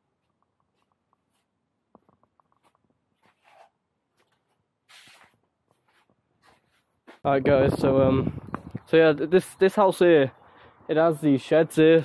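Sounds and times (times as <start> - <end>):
soft scuffs: 0.2 - 7.4.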